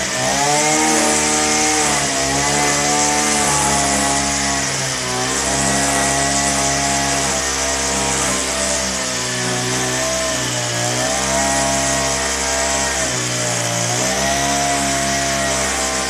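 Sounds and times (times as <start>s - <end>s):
string trimmer engine cutting grass: 0.0s - 16.0s.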